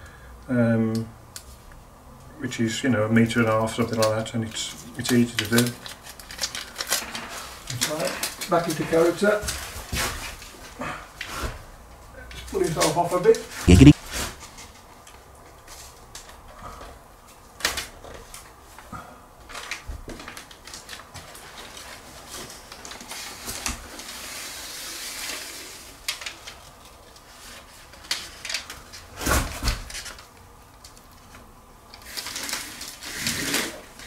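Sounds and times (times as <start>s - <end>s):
foil tape crinkling and rustling: 5.4s - 8.7s, 19.5s - 23.2s, 26.1s - 28.8s, 31.9s - 34.0s.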